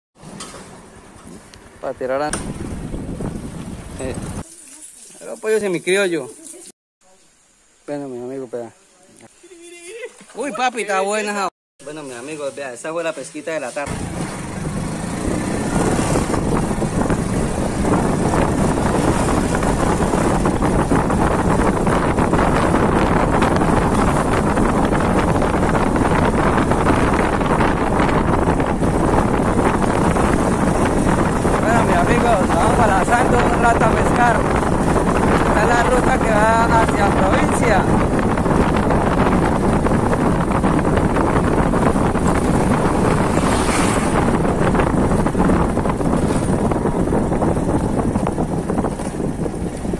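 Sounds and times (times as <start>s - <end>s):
wind buffeting microphone: 2.0s - 4.5s, 13.9s - 49.9s
small motorcycle engine running: 13.9s - 20.6s
motorcycle engine running: 13.9s - 49.9s.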